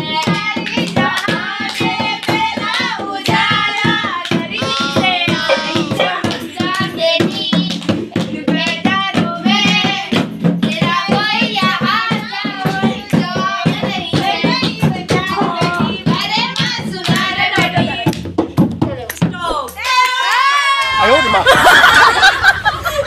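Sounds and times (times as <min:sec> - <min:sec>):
song with singing over beat: 0:00.0 - 0:18.1.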